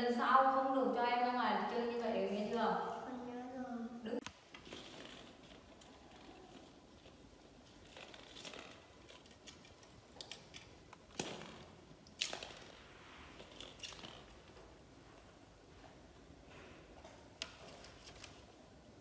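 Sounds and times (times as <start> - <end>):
plastic balls rustling and clicking: 4.6 - 14.7.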